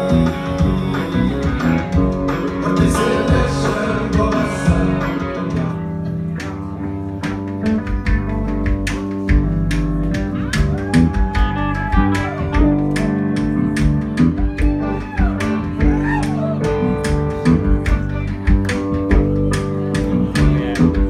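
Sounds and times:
person singing: 0:00.0 - 0:06.2
desert blues band playing: 0:00.0 - 0:21.0.

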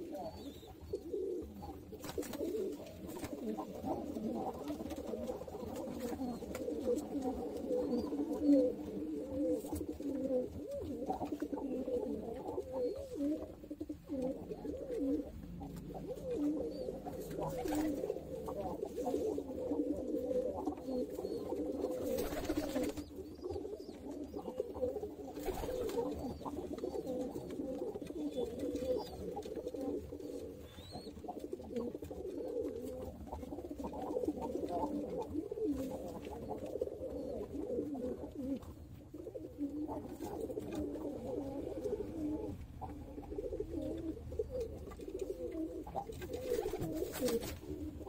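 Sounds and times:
pigeons cooing: 0:00.0 - 0:48.0.

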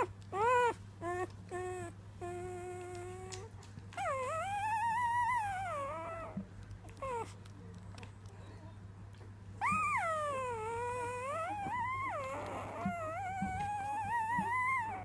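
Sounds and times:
puppy whining: 0:00.0 - 0:07.4, 0:09.2 - 0:15.0.

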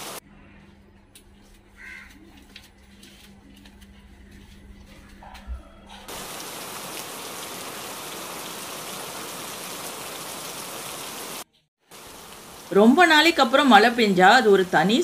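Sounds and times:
rain falling: 0:06.1 - 0:15.0.

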